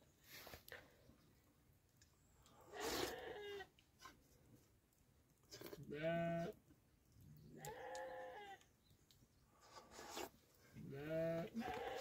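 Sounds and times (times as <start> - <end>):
sheep bleating: 5.9 - 6.6, 10.9 - 12.0.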